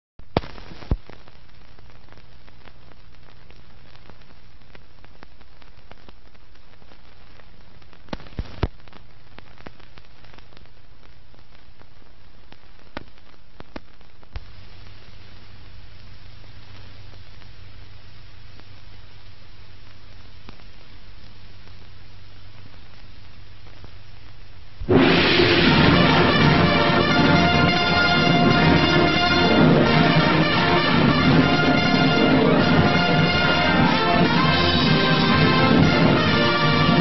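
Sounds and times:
film soundtrack hiss: 0.2 - 37.0
clicks and pops: 0.3 - 1.2, 7.8 - 10.6
low hum: 24.8 - 37.0.

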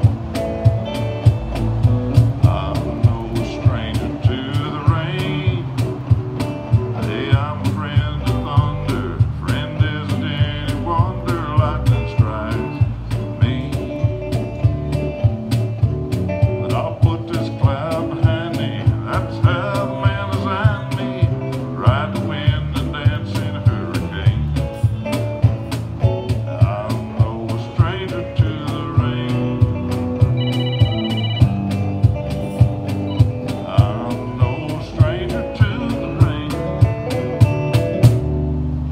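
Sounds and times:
cajon beat: 0.0 - 38.4
acoustic guitar: 0.0 - 38.9
man singing with vibrato: 2.4 - 6.1, 6.9 - 14.3, 16.6 - 24.8, 26.3 - 29.9, 33.4 - 37.1.

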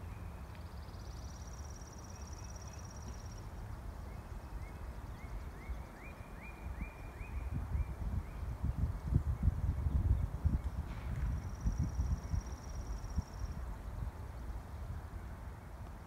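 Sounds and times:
bird chirping: 0.0 - 10.8.

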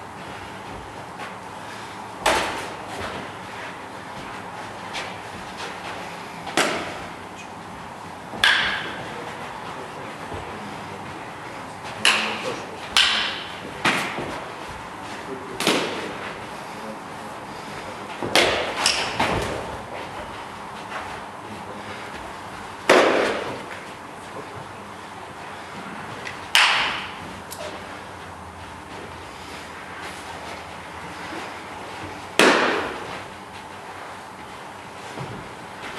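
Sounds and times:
lunging footwork: 0.0 - 35.9
smacks and thuds of sparring blows: 2.2 - 3.3, 15.6 - 16.1, 18.2 - 20.0, 22.9 - 23.6, 32.3 - 33.2.

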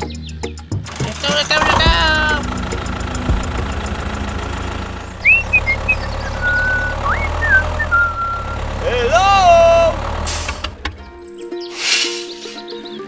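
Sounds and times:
tractor engine idling: 0.6 - 11.4
high whistling chirps: 2.4 - 8.7, 11.1 - 13.0.

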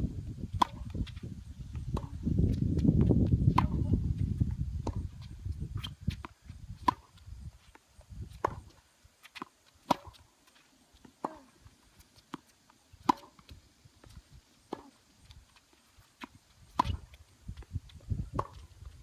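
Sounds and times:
racket hitting tennis ball: 0.6 - 1.0, 2.0 - 2.2, 3.5 - 4.0, 6.8 - 7.1, 8.3 - 10.2, 11.2 - 11.5, 12.2 - 13.6, 14.7 - 15.0, 16.1 - 17.2, 18.3 - 18.7
tennis ball bouncing on court: 0.6 - 1.2, 2.0 - 2.2, 2.8 - 3.9, 5.8 - 7.1, 8.3 - 10.2, 12.2 - 15.0, 16.2 - 17.7, 18.3 - 18.6.

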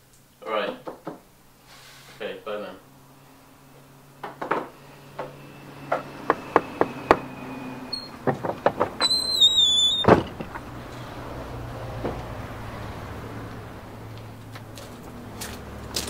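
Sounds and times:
door hinge creaking: 4.2 - 11.4
sharp clicks and knocks: 8.0 - 11.0
loud thud: 8.2 - 10.9.

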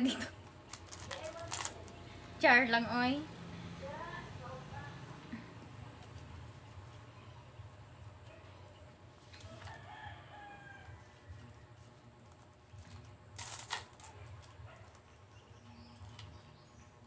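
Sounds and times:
coins clinking in a bowl: 0.7 - 1.9, 13.4 - 14.5
rooster crowing: 9.4 - 11.9.

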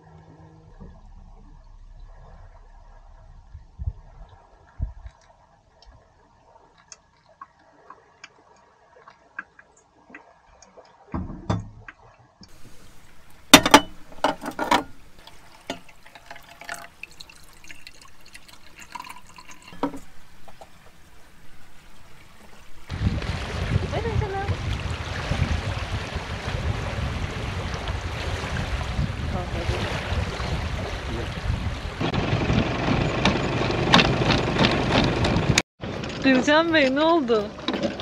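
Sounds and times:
water dripping: 0.7 - 22.9
cups and kitchenware clinking: 12.5 - 22.8
water trickling into a pot: 12.5 - 22.9.

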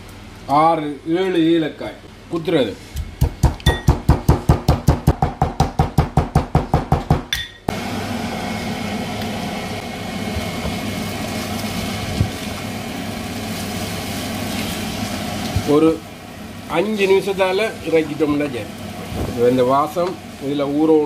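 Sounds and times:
metal pestle pounding in mortar: 3.0 - 7.5.

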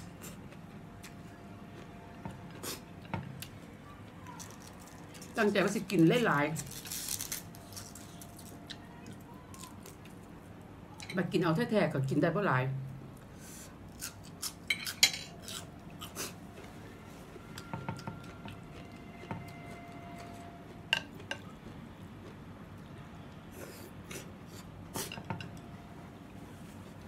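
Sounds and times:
chopsticks and spoon clinking bowl: 14.7 - 15.6, 17.5 - 21.5.

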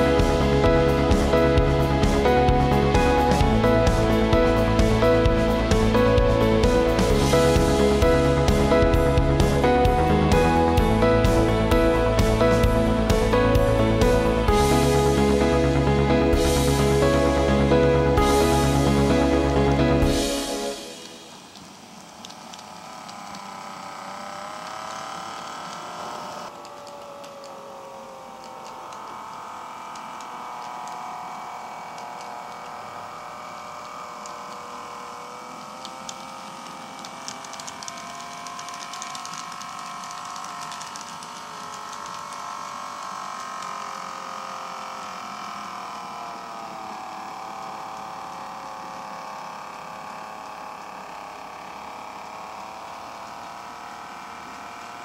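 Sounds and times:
model train motor whining: 20.1 - 55.0.

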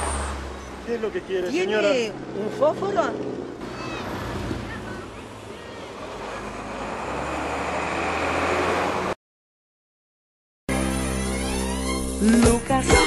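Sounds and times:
bus engine hum and road noise: 0.0 - 9.2
music: 10.7 - 13.0.

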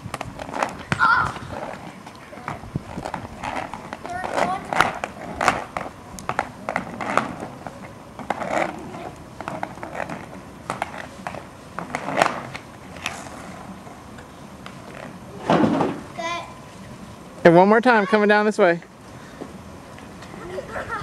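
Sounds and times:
skates clacking and scraping: 0.0 - 13.7
inline skate wheels on asphalt: 0.0 - 21.0.

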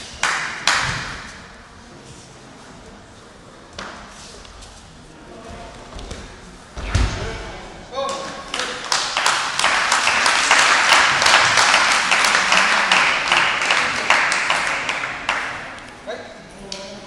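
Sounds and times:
spectators applauding: 8.5 - 15.7.

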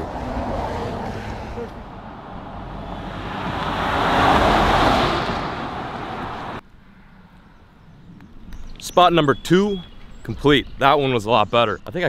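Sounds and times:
vehicle passing on road: 0.0 - 8.5.

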